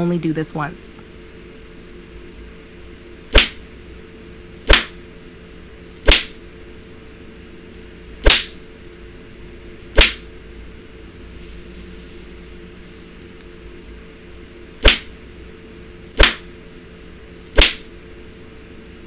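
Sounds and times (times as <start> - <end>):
faint steady hum: 0.0 - 19.0
cane strokes on bare skin: 11.2 - 13.2.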